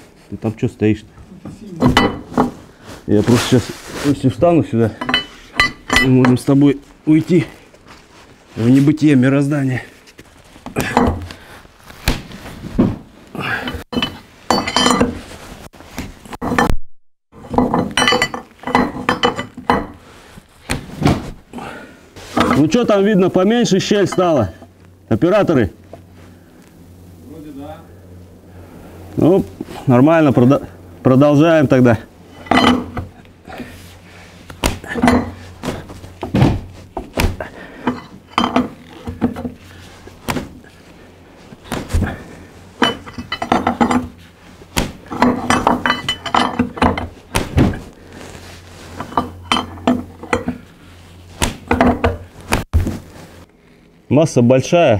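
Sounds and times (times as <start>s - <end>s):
wrench clinking on metal jack: 13.9s - 15.2s.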